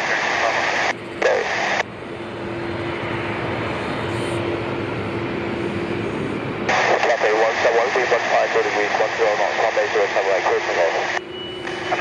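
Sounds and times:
radio transmission: 0:00.0 - 0:01.8, 0:06.7 - 0:12.0
jet engines running: 0:00.0 - 0:12.0.

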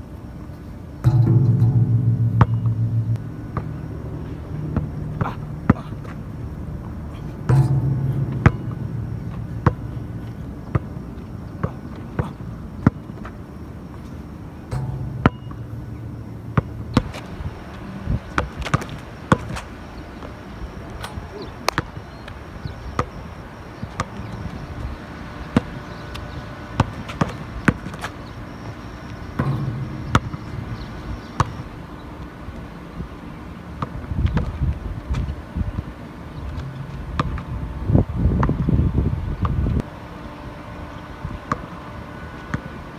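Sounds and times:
basketball bouncing on asphalt: 0:01.0 - 0:06.8, 0:07.4 - 0:13.4, 0:14.7 - 0:20.3, 0:21.7 - 0:22.0, 0:25.6 - 0:28.6, 0:29.2 - 0:31.7, 0:36.6 - 0:37.5
low rumble: 0:01.0 - 0:11.6, 0:14.7 - 0:18.3, 0:29.4 - 0:31.4.

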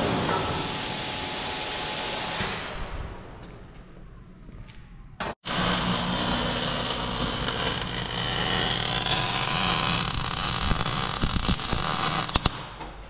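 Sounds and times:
quiet shop noise: 0:02.5 - 0:09.6
welding arc crackling: 0:05.4 - 0:12.8.

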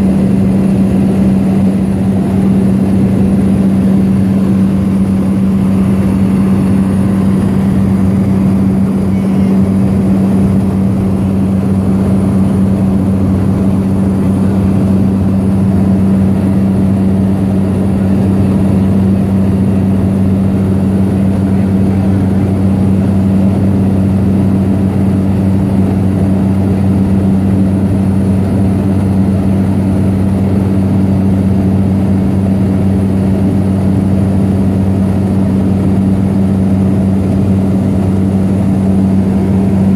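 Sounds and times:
propeller engine drone: 0:00.0 - 0:39.9.

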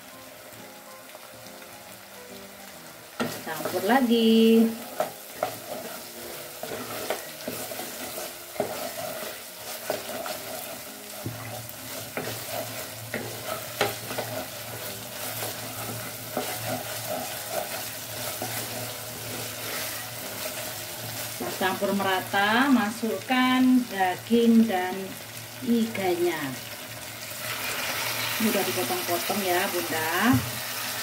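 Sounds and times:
spice paste sizzling in oil: 0:00.0 - 0:31.0
spatula scraping a metal pot: 0:04.9 - 0:21.5.

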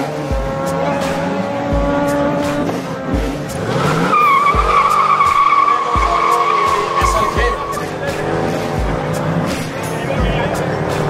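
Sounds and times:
car engine revving: 0:00.0 - 0:11.0
tyres squealing: 0:03.8 - 0:08.4.

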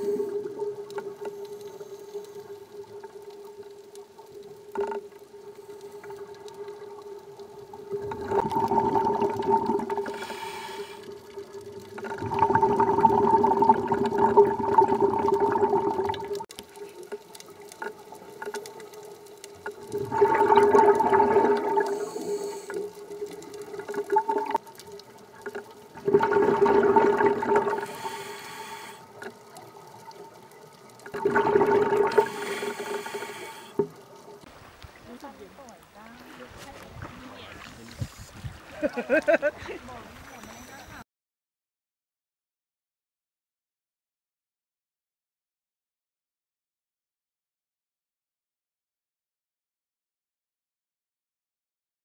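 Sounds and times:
regulator bubbles underwater: 0:00.0 - 0:35.3.

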